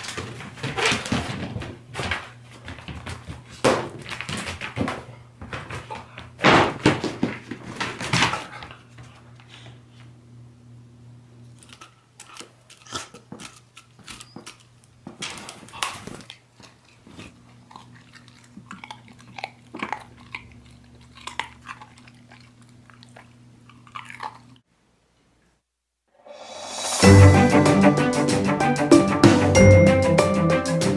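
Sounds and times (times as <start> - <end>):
dog biting and snapping: 11.6 - 24.6.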